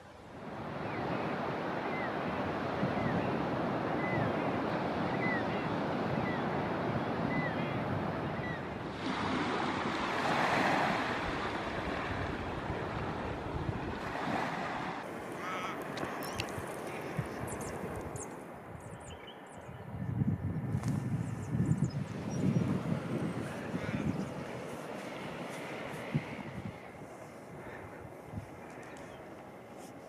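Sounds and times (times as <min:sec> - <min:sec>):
surf washing onto beach: 0:00.0 - 0:18.6, 0:22.0 - 0:30.0
wind on microphone: 0:00.0 - 0:29.3
bird chirping: 0:15.5 - 0:20.2.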